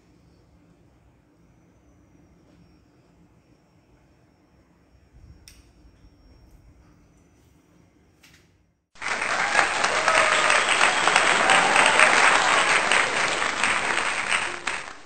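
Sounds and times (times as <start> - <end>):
crowd applause: 9.0 - 15.0.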